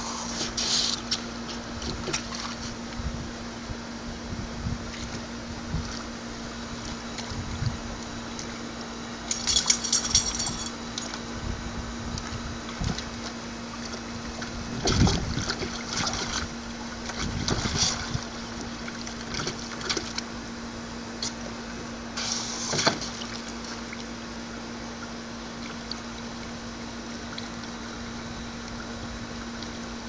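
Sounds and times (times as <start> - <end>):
steady low hum: 0.0 - 30.0
dog splashing water in tub: 12.7 - 20.4, 22.7 - 24.1.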